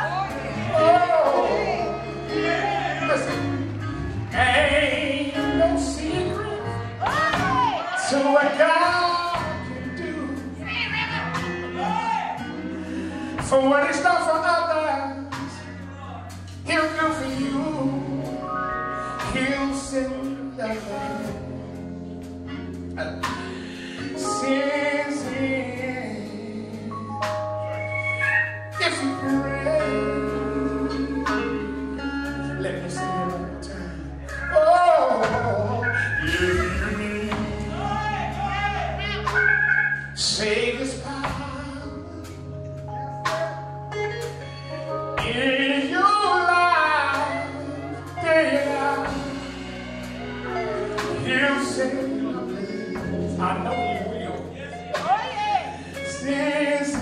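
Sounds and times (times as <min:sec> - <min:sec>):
man singing: 0:00.0 - 0:21.8, 0:23.0 - 0:43.7, 0:45.2 - 0:57.0
drums: 0:00.0 - 0:57.0
electric bass: 0:00.0 - 0:57.0
sustained keyboard chords: 0:00.0 - 0:57.0.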